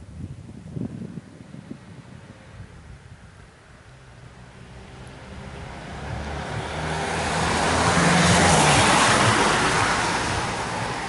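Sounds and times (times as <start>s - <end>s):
vehicle driving past: 3.8s - 11.0s.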